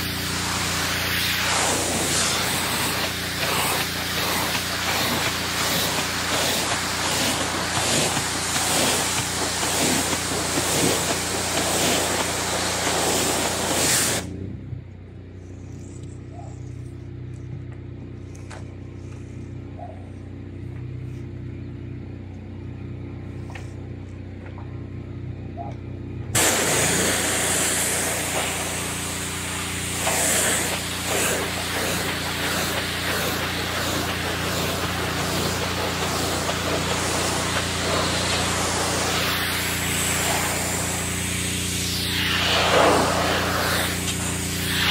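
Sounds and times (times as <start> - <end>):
pressure washer water spray: 0.0 - 14.3, 26.4 - 44.9
pressure washer motor drone: 0.0 - 14.4, 26.3 - 44.9.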